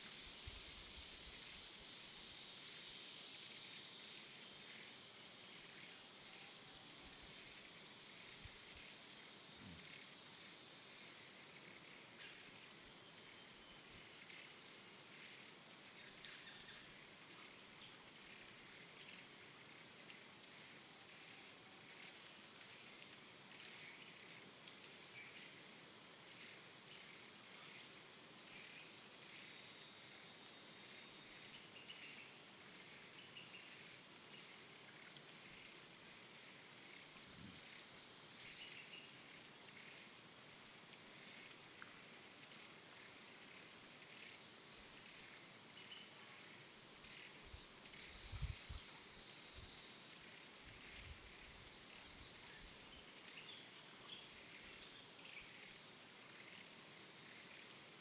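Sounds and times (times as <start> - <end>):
faint steady hiss: 0.0 - 58.0
faint ticks: 44.0 - 44.4.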